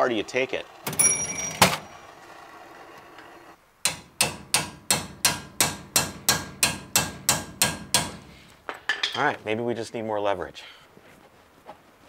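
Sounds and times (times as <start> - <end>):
hammer striking metal wrench: 3.8 - 8.3.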